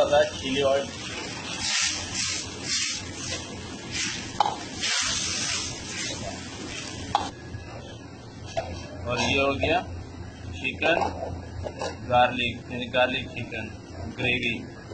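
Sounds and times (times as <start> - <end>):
gravy bubbling and hissing in wok: 0.0 - 9.0.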